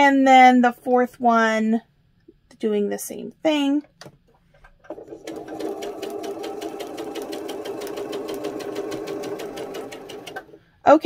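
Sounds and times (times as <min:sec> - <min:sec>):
sewing machine stitching: 0:04.8 - 0:10.6.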